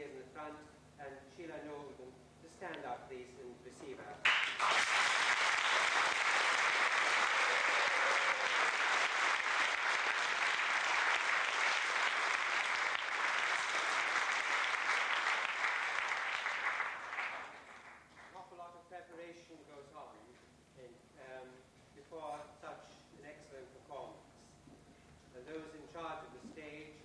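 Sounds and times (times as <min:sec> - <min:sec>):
audience applauding: 0:04.2 - 0:18.4.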